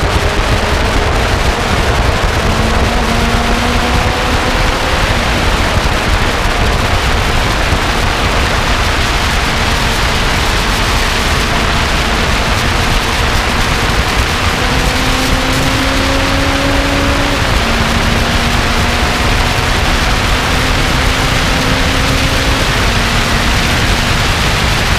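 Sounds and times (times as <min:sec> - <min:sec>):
car engine accelerating: 0:00.0 - 0:24.9
wind and road noise: 0:00.0 - 0:24.9.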